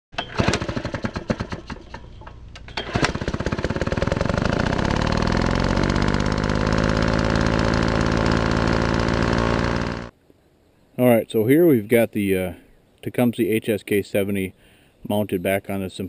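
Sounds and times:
small engine sputtering and revving: 0:00.2 - 0:02.1, 0:02.7 - 0:10.1.

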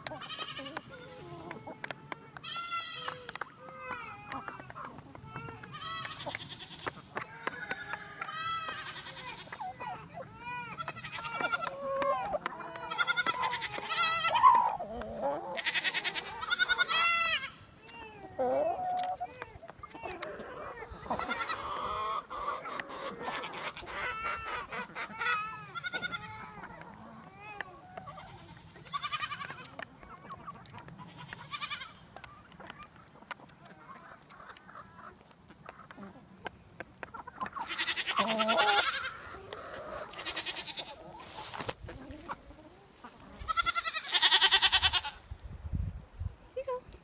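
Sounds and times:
goats bleating: 0:00.0 - 0:14.6, 0:15.5 - 0:17.6, 0:19.9 - 0:29.7, 0:31.0 - 0:32.0, 0:37.5 - 0:41.0, 0:43.3 - 0:45.2
chickens clucking: 0:00.0 - 0:45.4.

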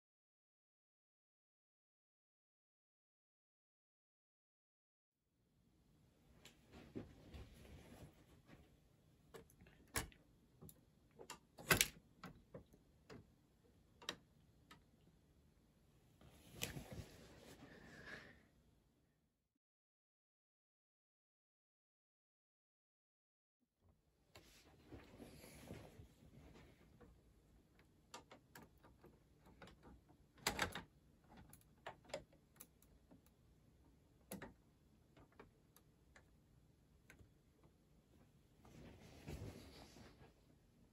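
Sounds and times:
plastic parts clicking and clacking: 0:27.8 - 0:33.4.

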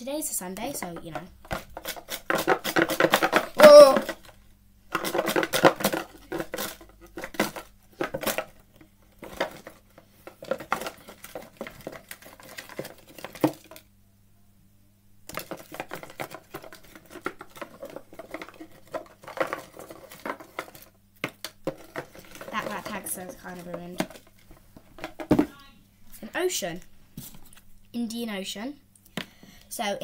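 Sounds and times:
paper tags rustling: 0:21.7 - 0:25.6.

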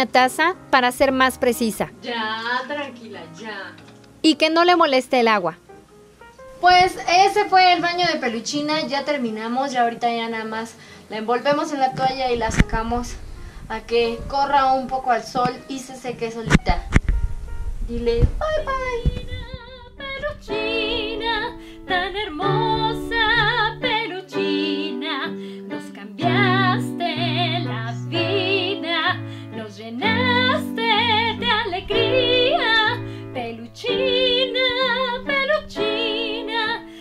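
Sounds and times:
woman singing: 0:17.9 - 0:37.0.

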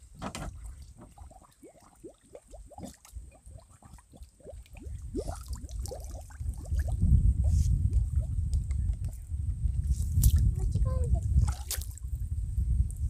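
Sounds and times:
gurgling air bubbles underwater: 0:00.8 - 0:08.6
low rumble: 0:06.2 - 0:13.0.

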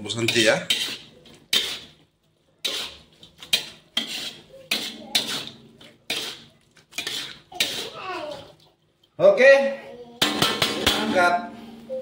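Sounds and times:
spatula scraping a wok: 0:00.0 - 0:08.6.

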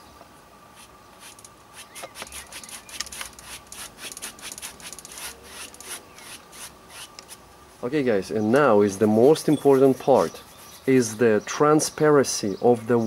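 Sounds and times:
brush scrubbing on canvas: 0:09.6 - 0:11.0.

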